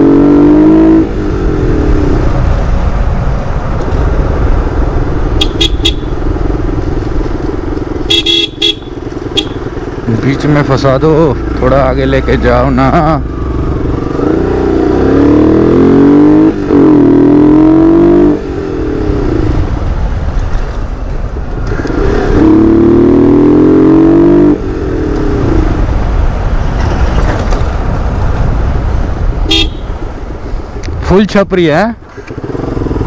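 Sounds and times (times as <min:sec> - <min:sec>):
traffic engines rumbling: 0:00.0 - 0:33.0
vehicle horn honking: 0:05.4 - 0:06.2, 0:08.0 - 0:09.7, 0:29.5 - 0:30.0.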